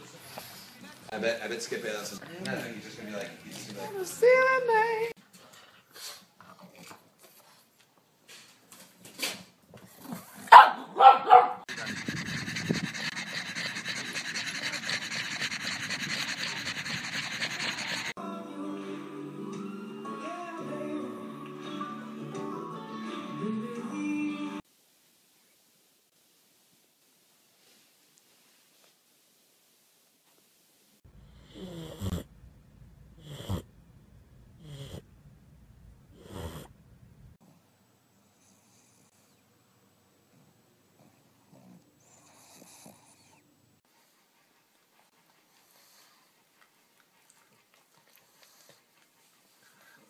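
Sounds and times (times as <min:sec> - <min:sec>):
dog panting: 0:11.7 - 0:18.2, 0:43.8 - 0:50.0
dog snoring: 0:31.2 - 0:32.3, 0:33.1 - 0:33.7, 0:34.6 - 0:35.1, 0:36.1 - 0:36.7, 0:41.0 - 0:43.4.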